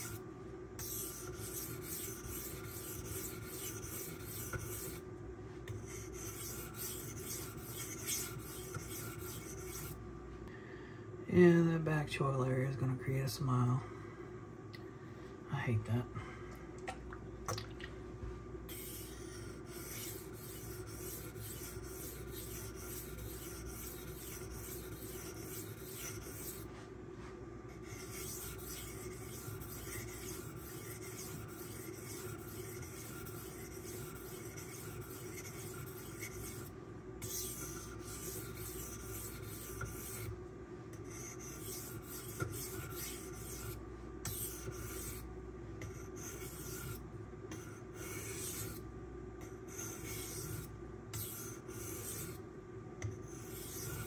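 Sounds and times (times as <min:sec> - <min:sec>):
knife scraping on whetstone: 0:00.0 - 0:00.2, 0:00.8 - 0:05.0, 0:05.7 - 0:10.0, 0:18.7 - 0:26.7, 0:27.7 - 0:40.3, 0:41.0 - 0:45.2, 0:45.8 - 0:48.8, 0:49.4 - 0:52.4, 0:53.0 - 0:54.0.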